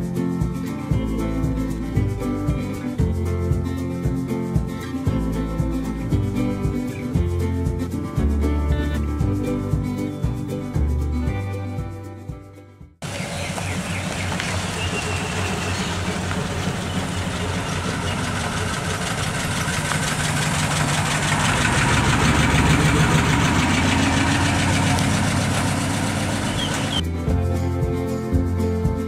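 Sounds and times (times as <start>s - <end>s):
car engine driving slowly past: 13.0s - 27.0s.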